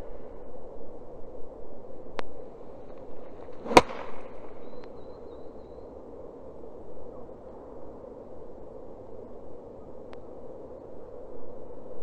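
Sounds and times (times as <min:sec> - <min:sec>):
golf club striking ball: 0:03.4 - 0:04.7.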